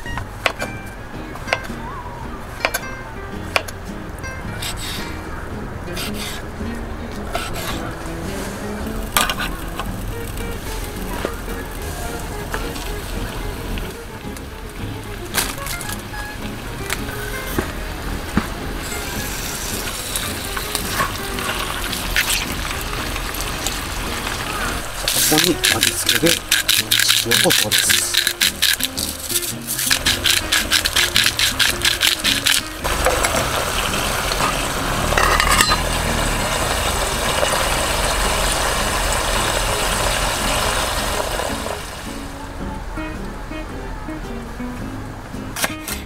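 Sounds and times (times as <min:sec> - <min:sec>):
oil sizzling in a tin: 0:18.8 - 0:42.2
chopsticks clicking against tin: 0:25.0 - 0:32.7
metal lid clattering: 0:34.4 - 0:36.0.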